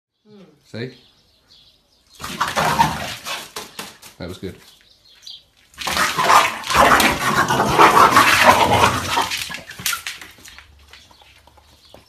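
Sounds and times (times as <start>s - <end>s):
dogs snarling and growling: 2.2s - 3.6s, 5.8s - 9.8s.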